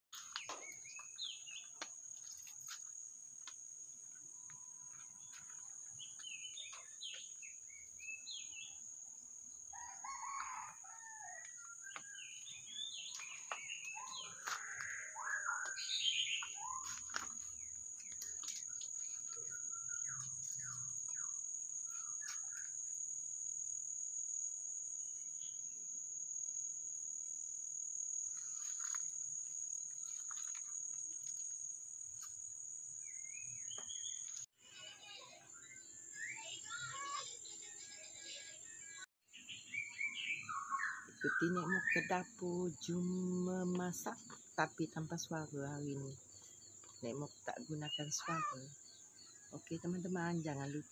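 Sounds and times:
small birds chirping: 0.2s - 4.2s, 4.9s - 9.2s, 10.2s - 23.1s, 28.3s - 50.9s
insects droning: 0.2s - 34.5s
rooster crowing: 9.7s - 11.7s.

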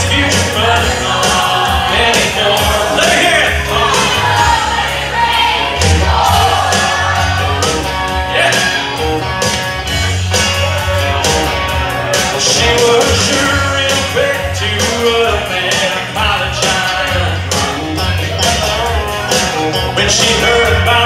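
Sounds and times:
man singing: 0.0s - 4.8s, 8.3s - 9.0s, 12.0s - 21.0s
live country-rock band: 0.0s - 21.0s.

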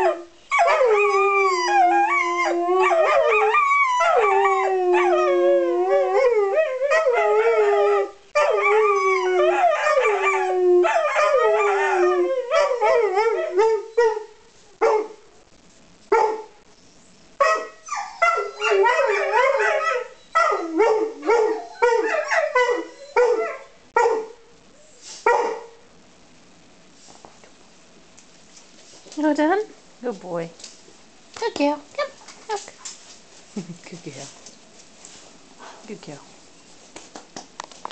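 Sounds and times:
dogs howling: 0.0s - 14.3s, 17.5s - 24.2s
dogs barking and yowling: 0.0s - 15.2s, 16.1s - 16.6s, 17.4s - 24.4s, 25.2s - 25.8s.

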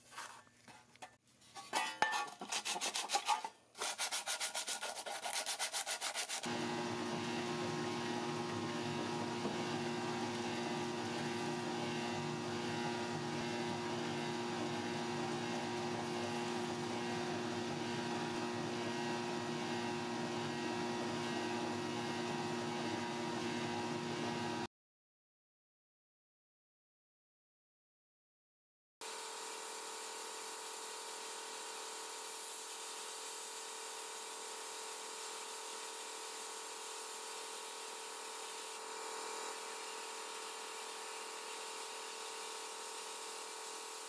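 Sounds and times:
sandpaper rubbing on steel: 2.4s - 6.5s.

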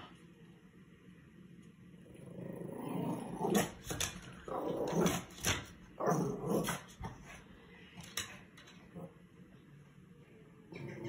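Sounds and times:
dog growling: 2.0s - 7.4s, 8.8s - 9.2s, 10.7s - 11.0s.

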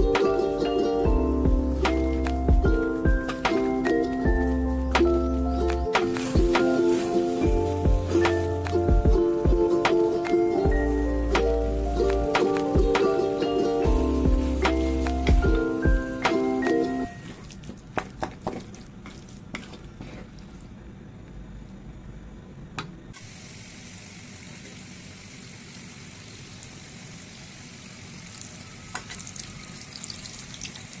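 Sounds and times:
deep-frying sizzle: 0.0s - 17.4s, 23.2s - 31.0s
spatula stirring in a pan: 18.2s - 20.6s.

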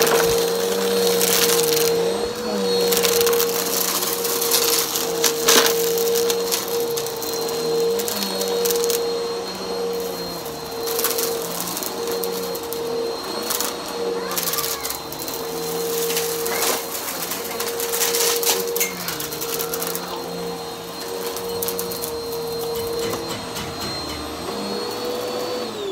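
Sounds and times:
debris rattling through vacuum: 0.0s - 24.8s
upright vacuum motor whine: 0.0s - 25.9s.

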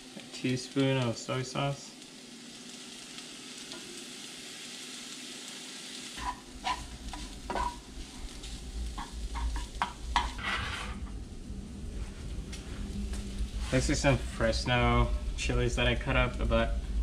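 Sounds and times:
rice sizzling in a skillet: 0.0s - 11.1s
spatula scraping a pan: 6.2s - 7.9s, 9.0s - 11.1s
low rumble: 8.0s - 17.0s.

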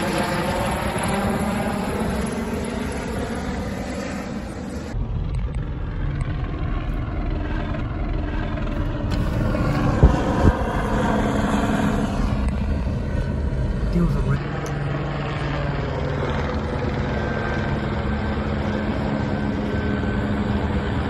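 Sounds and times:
helicopter flying low overhead: 0.0s - 21.0s
car interior rumble while driving: 8.7s - 11.2s.

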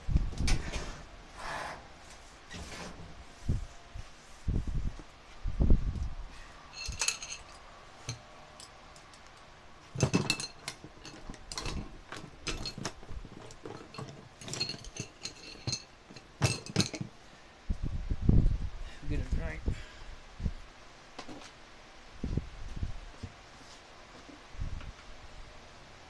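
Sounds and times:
metallic clinks and knocks: 6.7s - 8.8s, 10.0s - 17.1s.

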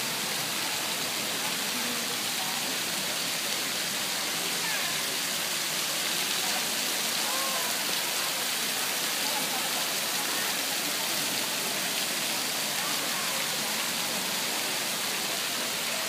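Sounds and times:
faint voices chattering: 0.0s - 16.0s.

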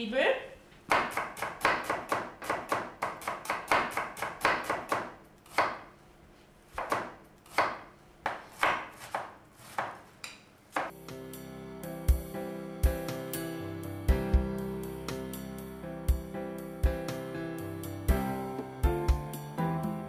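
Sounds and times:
knife chopping on cutting board: 0.9s - 5.9s, 6.7s - 11.0s
music: 10.9s - 20.0s.

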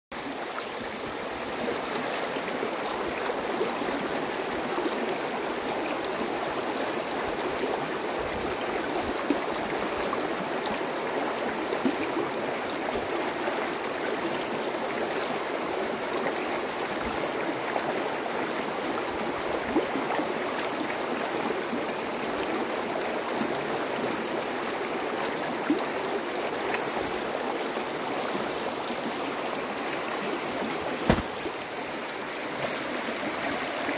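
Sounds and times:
river rushing over stones: 0.2s - 33.9s
water splashes: 24.9s - 33.9s.

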